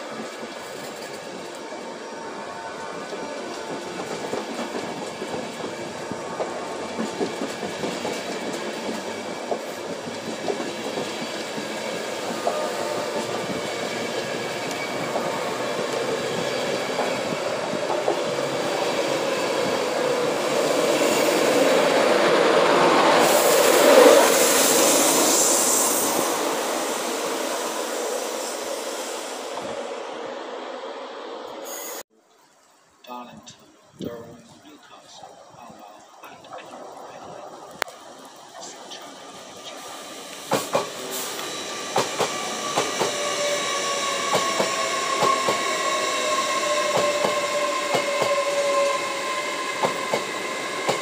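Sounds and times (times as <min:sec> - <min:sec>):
train rushing rumble: 0:00.0 - 0:32.0, 0:35.6 - 0:51.0
train wheels clicking over rail joints: 0:03.5 - 0:20.0, 0:40.2 - 0:51.0.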